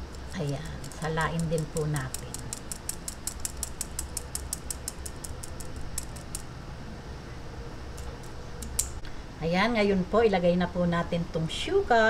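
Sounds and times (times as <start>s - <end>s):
light ticks of tapped strainer: 0.0s - 6.5s.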